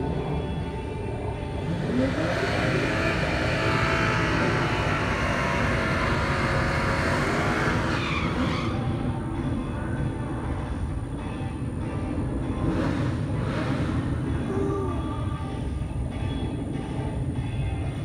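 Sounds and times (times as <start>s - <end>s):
race car engine revving: 1.4s - 9.0s, 12.0s - 14.7s.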